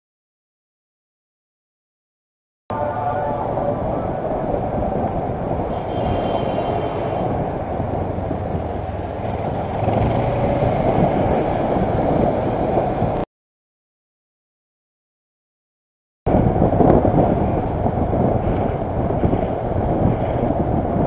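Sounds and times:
wind noise: 2.7s - 13.3s, 16.3s - 21.0s
motorcycle engine: 7.8s - 12.4s.

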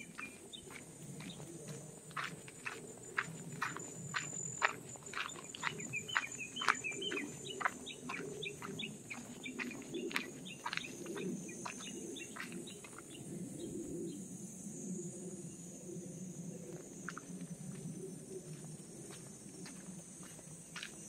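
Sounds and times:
footsteps crunching on gravel: 0.0s - 13.2s, 17.0s - 21.0s
small birds chirping: 0.0s - 14.2s
steady high whine: 0.0s - 21.0s.

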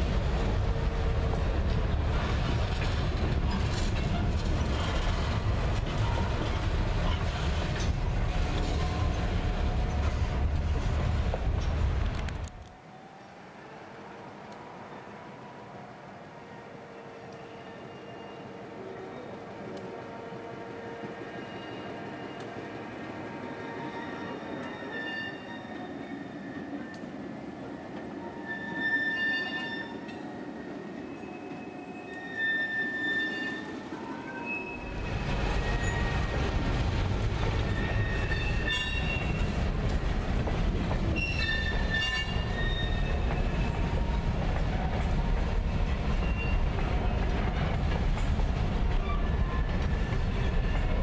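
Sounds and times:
freight train wheels rumbling: 0.0s - 12.8s, 16.9s - 51.0s
faint thin wheel squeal: 17.4s - 19.3s, 23.4s - 26.3s, 28.2s - 30.1s, 31.1s - 34.9s, 41.2s - 43.5s.

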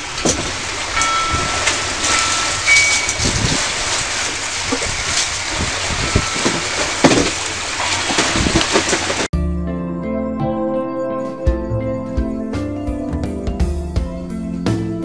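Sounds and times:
choppy water rushing: 0.0s - 9.3s
wind buffeting microphone: 0.0s - 9.3s.

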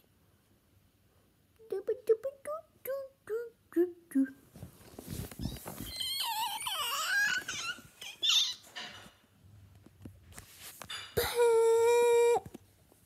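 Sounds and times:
child squealing: 5.4s - 8.7s.

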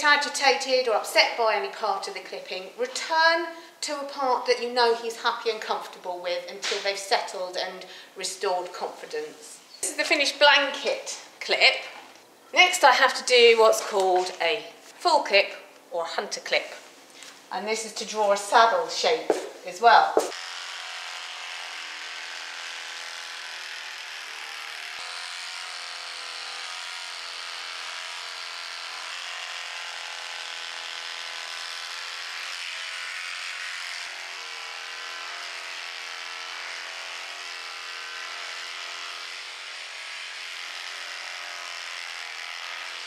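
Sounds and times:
electric clippers humming: 18.4s - 43.0s.

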